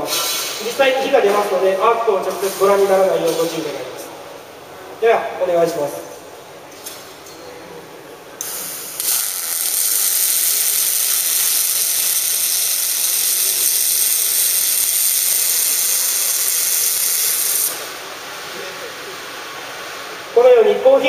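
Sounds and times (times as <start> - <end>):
welding arc sizzling hiss: 0.0 - 4.5, 8.4 - 20.4.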